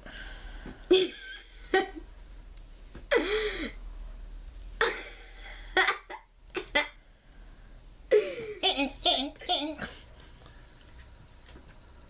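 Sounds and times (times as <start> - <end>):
boy laughing: 0.9 - 2.0, 4.8 - 7.0, 8.1 - 9.0.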